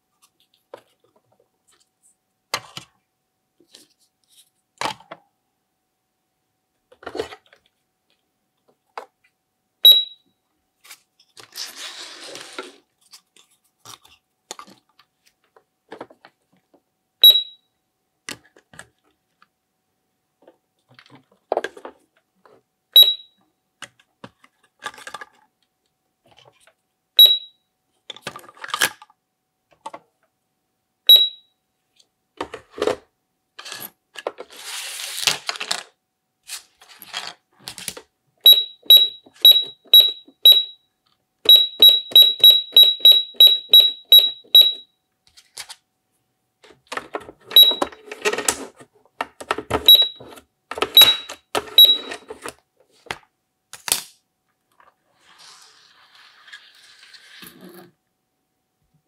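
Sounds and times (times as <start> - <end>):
toy cash register beeping: 9.9 - 10.2, 17.2 - 17.6, 23.0 - 23.3, 27.2 - 27.6, 31.1 - 31.5, 38.5 - 40.8, 41.5 - 44.9, 47.5 - 48.3, 49.8 - 52.5
plastic toys clicking and knocking: 46.6 - 54.8.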